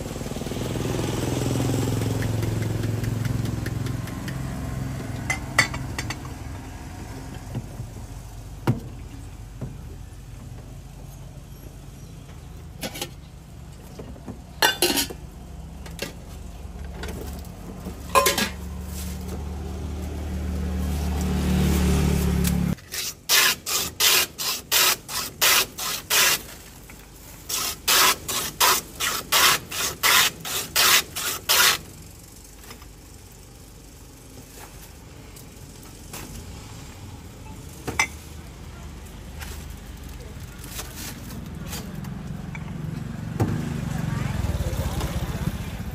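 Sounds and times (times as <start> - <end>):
glass clinking: 14.6 - 15.2, 18.1 - 18.6, 38.0 - 38.2
ice shaving in rasping strokes: 22.8 - 26.7, 27.4 - 31.8.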